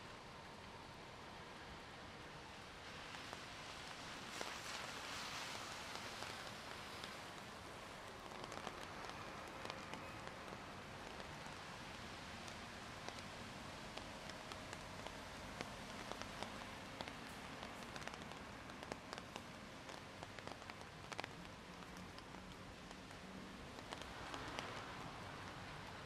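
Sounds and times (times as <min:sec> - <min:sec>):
steady rain: 0:00.0 - 0:26.0
sharp raindrops striking close: 0:00.4 - 0:26.0.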